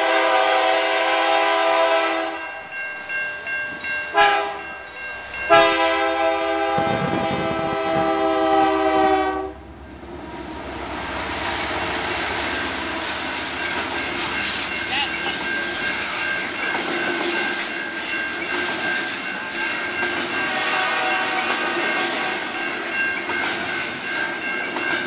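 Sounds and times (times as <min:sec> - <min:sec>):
locomotive air horn blasts: 0:00.0 - 0:02.4, 0:04.1 - 0:04.6, 0:05.5 - 0:09.7, 0:20.4 - 0:22.4
locomotive rumbling past: 0:00.0 - 0:25.0
train wheel noise: 0:00.0 - 0:25.0.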